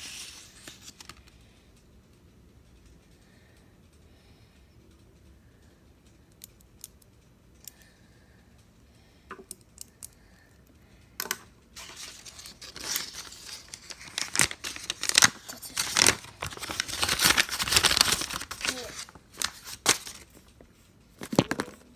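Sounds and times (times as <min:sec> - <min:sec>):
paper rustling and crinkling: 0:00.0 - 0:01.3, 0:11.8 - 0:20.5.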